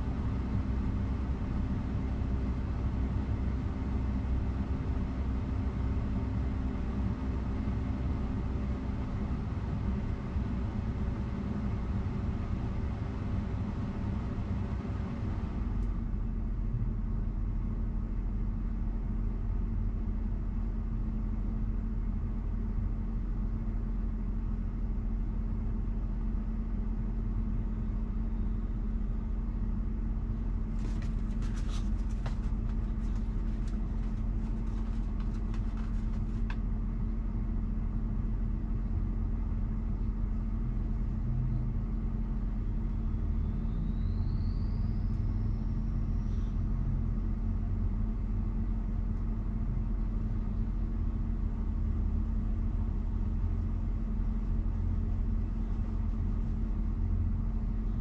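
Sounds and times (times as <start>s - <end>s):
car climate system humming: 14.7s - 43.0s, 45.0s - 58.0s.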